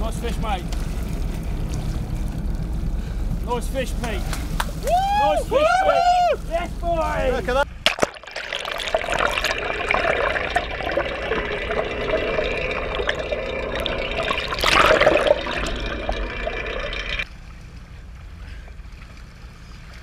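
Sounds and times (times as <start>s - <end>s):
water rushing underwater: 7.8s - 17.3s.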